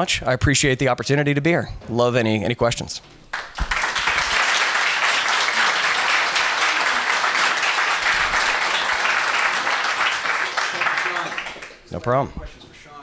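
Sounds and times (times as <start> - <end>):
audience applauding: 3.3 - 11.9.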